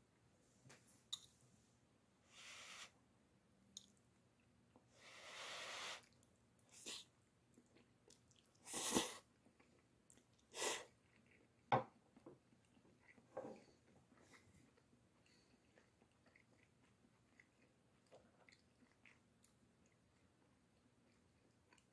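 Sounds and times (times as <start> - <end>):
person slurping noodles: 5.1 - 6.1, 8.6 - 9.2
chewing: 6.0 - 21.9.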